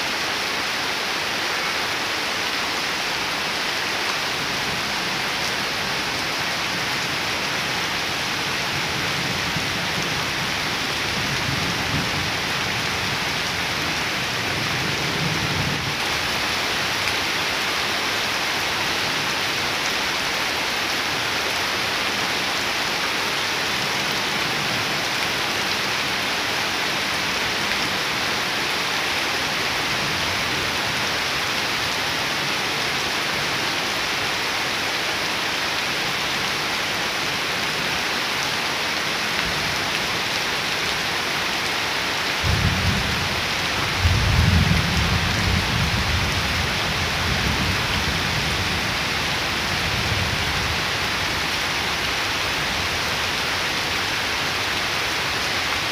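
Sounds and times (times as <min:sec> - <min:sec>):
rain on wet ground and leaves: 0:00.0 - 0:55.9
low rumble of thunder: 0:43.8 - 0:48.8.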